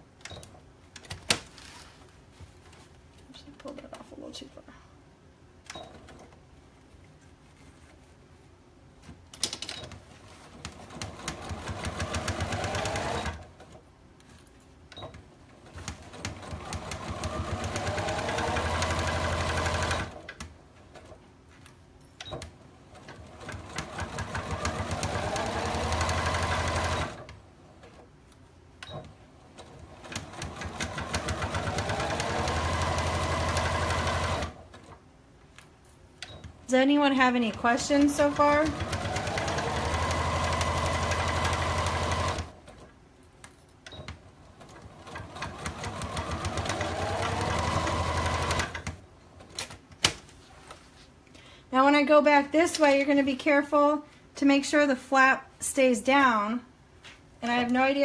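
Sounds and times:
electric sewing machine whirring: 10.8s - 13.6s, 16.0s - 20.3s, 23.0s - 27.4s, 29.7s - 34.7s, 37.2s - 42.6s, 44.6s - 49.0s.

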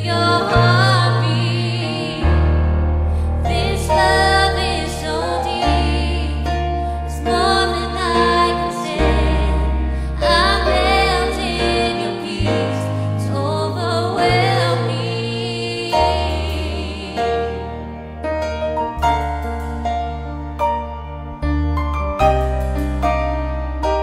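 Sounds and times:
woman singing: 0.0s - 2.3s, 3.5s - 17.7s
group singing in harmony: 0.0s - 18.2s
keyboard accompaniment: 0.0s - 24.0s.

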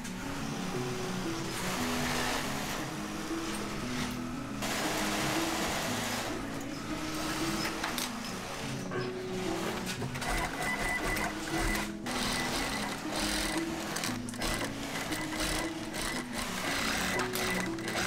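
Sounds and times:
sewing machine stitching: 3.4s - 6.5s, 7.1s - 18.0s.

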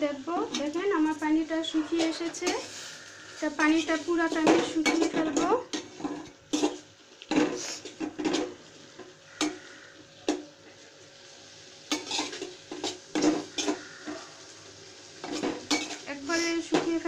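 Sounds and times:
spoon scraping a metal pot: 1.6s - 2.9s.

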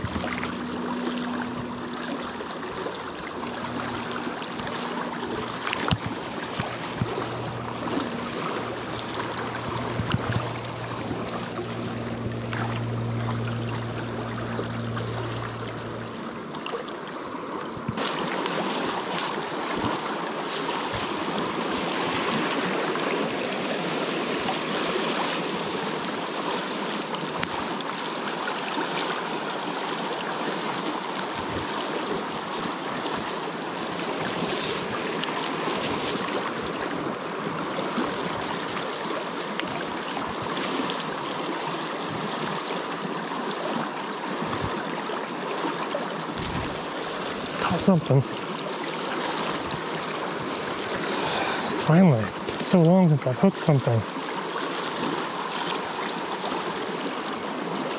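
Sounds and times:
low steady hum: 0.0s - 18.0s
stream water rushing: 0.0s - 57.9s.

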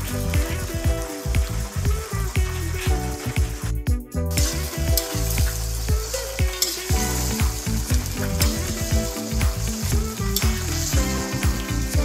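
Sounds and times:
background music with low beat: 0.0s - 12.0s
sauce bubbling and sizzling: 0.0s - 12.0s.

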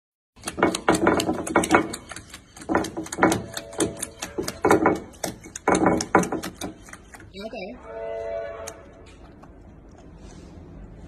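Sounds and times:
puppy lapping water: 0.4s - 7.5s, 8.7s - 10.8s.

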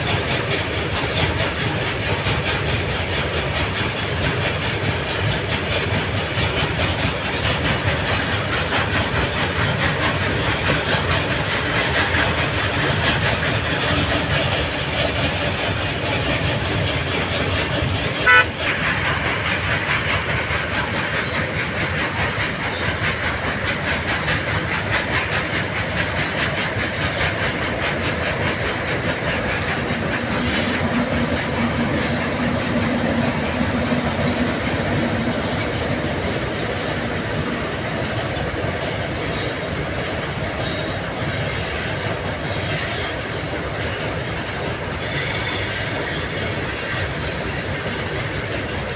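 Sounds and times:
electric locomotive hum: 0.0s - 48.9s
freight train wheels clacking: 0.0s - 48.9s
short sharp train horn toot: 18.2s - 18.6s.

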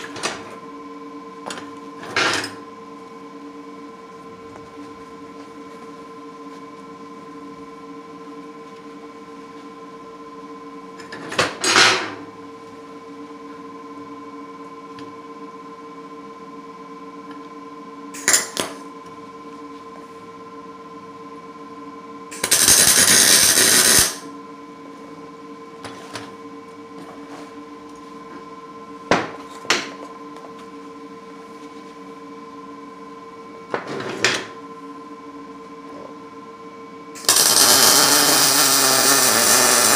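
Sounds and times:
steady hum: 0.0s - 33.8s
welder crackling: 22.4s - 24.2s, 37.2s - 39.9s.

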